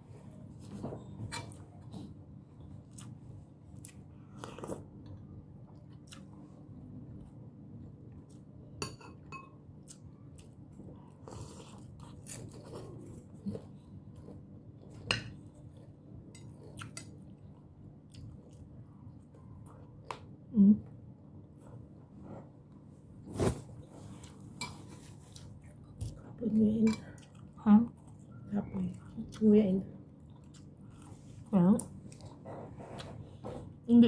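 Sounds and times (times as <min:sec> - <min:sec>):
person chewing: 0:01.4 - 0:06.6, 0:09.8 - 0:20.2, 0:27.2 - 0:28.4, 0:30.2 - 0:33.2.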